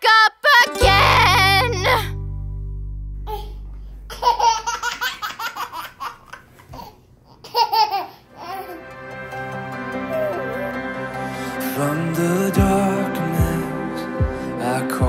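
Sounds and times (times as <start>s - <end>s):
baby laughing: 0.7s - 2.1s, 3.3s - 8.9s, 10.0s - 10.8s
held music chord: 0.7s - 4.8s, 8.7s - 15.0s.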